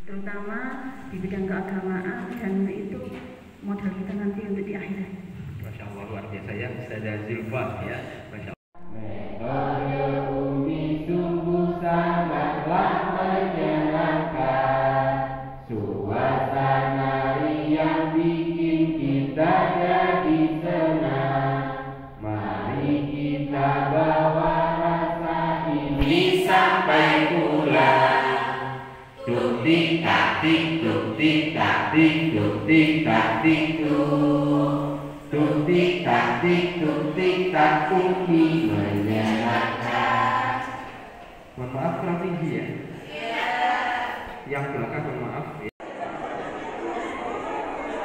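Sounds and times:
group of people singing: 8.8 - 48.0.

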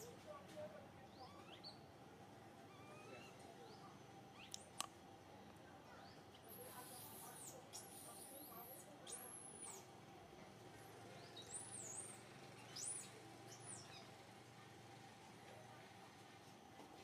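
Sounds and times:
high-pitched animal squeaking calls: 2.7 - 3.4.

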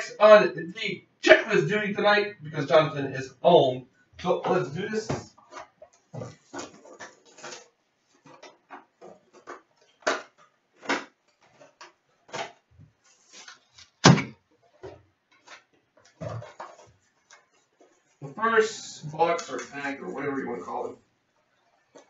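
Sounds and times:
cardboard and plastic wrap rustling: 4.4 - 18.2.

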